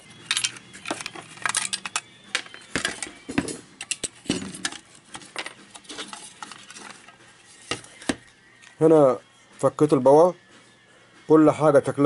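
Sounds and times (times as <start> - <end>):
metallic clicks and scrapes: 0.2 - 3.1, 3.8 - 7.8.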